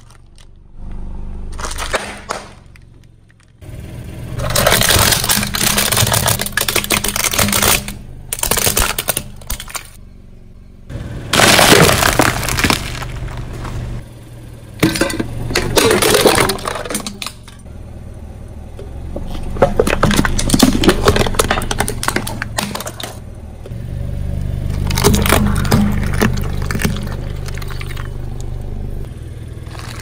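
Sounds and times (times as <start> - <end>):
low engine hum: 0.0 - 30.0
plastic container cracking: 1.5 - 3.6, 4.4 - 10.0, 11.4 - 13.8, 14.8 - 17.6, 19.3 - 23.2, 24.7 - 28.1
eggshells cracking: 11.4 - 13.5, 29.6 - 30.0
plastic wrappers crackling: 29.6 - 30.0.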